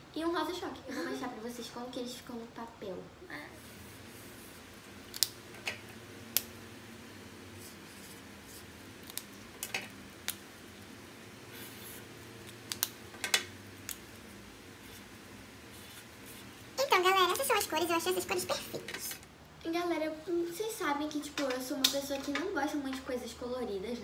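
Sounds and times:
felt tips scratching paper: 11.5s - 12.1s.

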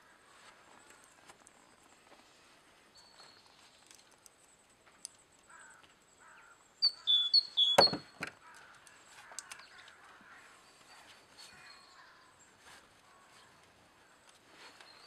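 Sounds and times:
short high squeaks: 7.5s - 8.2s
light clicks: 8.4s - 10.1s.

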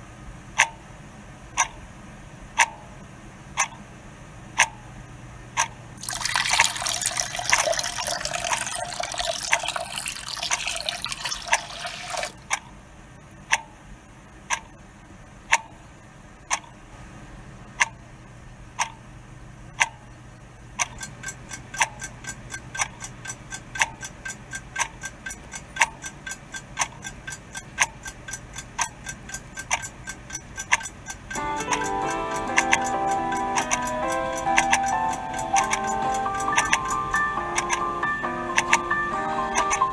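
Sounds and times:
clock ticking: 0.6s - 0.8s, 1.6s - 1.8s, 2.6s - 2.9s, 3.6s - 3.8s, 4.6s - 4.8s, 5.6s - 12.7s, 13.5s - 13.7s, 14.5s - 14.8s, 15.5s - 15.8s, 16.5s - 16.8s, 17.8s - 18.0s, 18.8s - 19.0s, 19.7s - 20.1s, 20.7s - 39.9s
running water: 6.0s - 12.5s.

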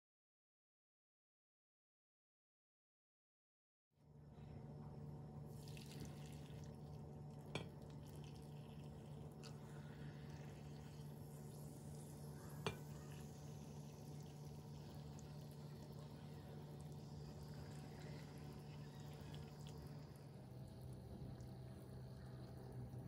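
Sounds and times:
liquid pouring into jars: 5.5s - 23.0s.

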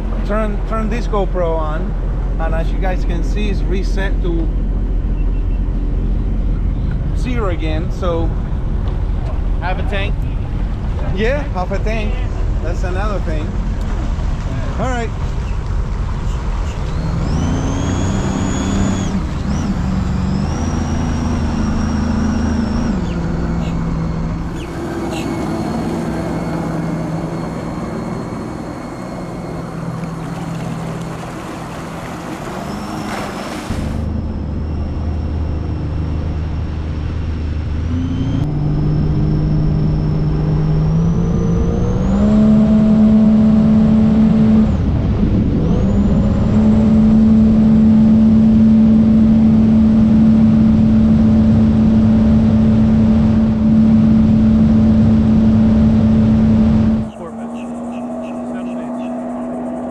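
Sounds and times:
high engine whine: 0.0s - 59.9s
watercraft engine accelerating: 0.0s - 59.9s
rushing wind and water: 29.7s - 34.2s.

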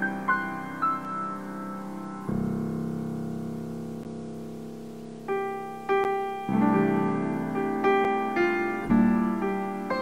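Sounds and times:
piano chords: 0.0s - 10.0s.

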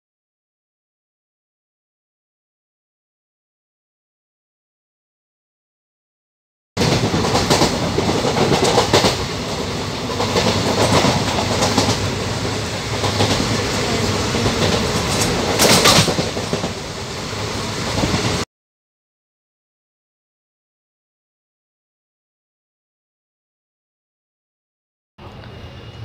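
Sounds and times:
wheels clacking over rail joints: 6.8s - 16.8s
train rumble and rush: 6.8s - 18.5s, 25.2s - 26.0s.

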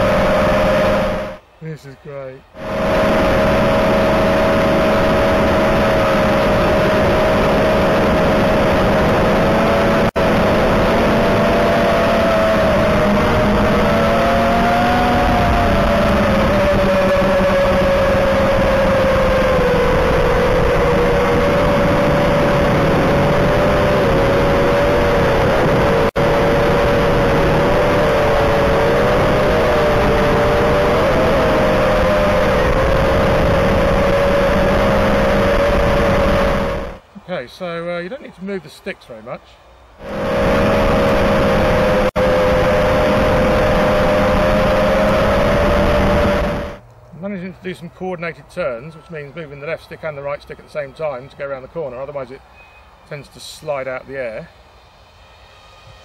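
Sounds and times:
quadcopter motors whining: 0.0s - 1.4s, 2.5s - 37.0s, 40.0s - 46.8s.

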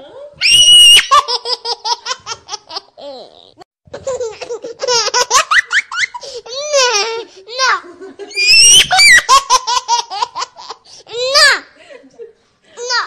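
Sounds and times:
baby laughing and squealing: 0.4s - 7.2s, 8.3s - 10.8s.

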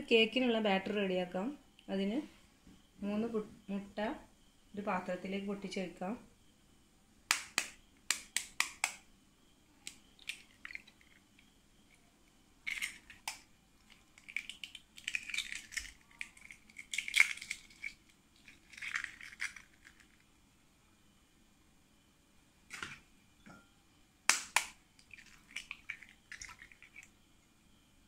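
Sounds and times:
eggshells cracking: 9.9s - 11.3s, 12.6s - 20.2s, 24.3s - 27.1s.

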